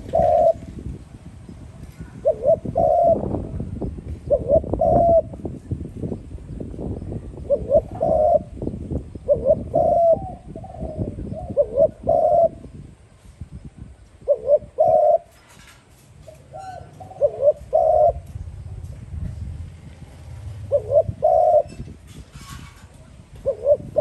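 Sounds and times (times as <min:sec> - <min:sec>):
dove cooing: 0:00.0 - 0:00.7, 0:02.0 - 0:05.4, 0:07.4 - 0:08.6, 0:09.2 - 0:12.8, 0:14.2 - 0:15.4, 0:16.2 - 0:18.4, 0:20.2 - 0:22.7, 0:23.4 - 0:24.0.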